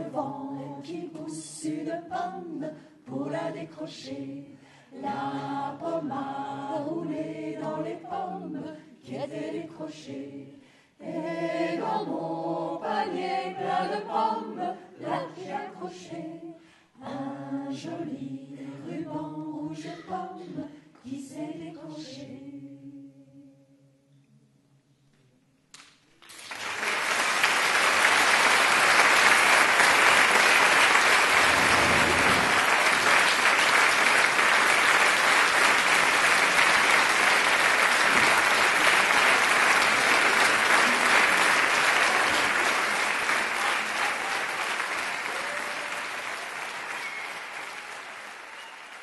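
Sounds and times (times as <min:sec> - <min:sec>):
audience applauding: 0:26.2 - 0:49.0.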